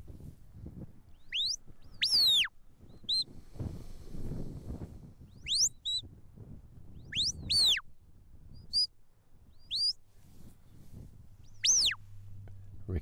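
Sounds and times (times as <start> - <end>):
sharp shepherd whistles: 1.2 - 3.3, 5.3 - 6.1, 7.0 - 7.8, 8.6 - 8.9, 9.6 - 10.0, 11.5 - 12.0
short high whistle blips: 1.3 - 2.5, 5.4 - 6.0, 7.1 - 7.8, 9.7 - 10.0, 11.6 - 12.0.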